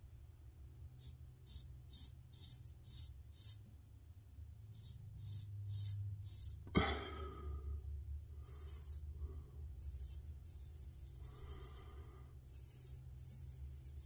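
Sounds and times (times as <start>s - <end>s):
razor scraping stubble: 4.7s - 6.7s, 9.8s - 11.8s, 12.4s - 14.0s.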